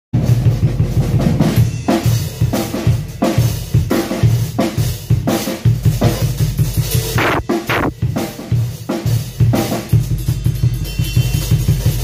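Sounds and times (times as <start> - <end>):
kick drum strokes: 7.2 - 7.9
snare drum backbeat: 7.2 - 7.9.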